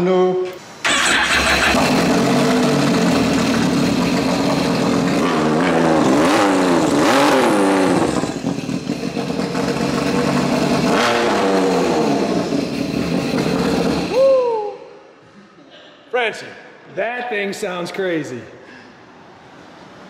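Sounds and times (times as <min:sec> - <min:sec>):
jet ski engine revving: 0:00.9 - 0:14.1.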